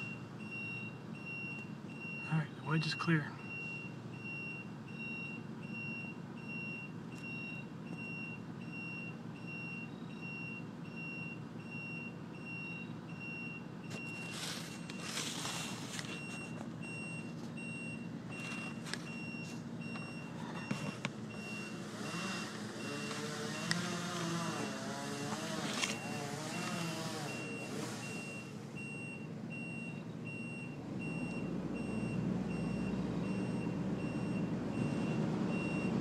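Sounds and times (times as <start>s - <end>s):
truck backup alarm beeping: 0.0s - 36.0s
truck engine running: 12.2s - 36.0s.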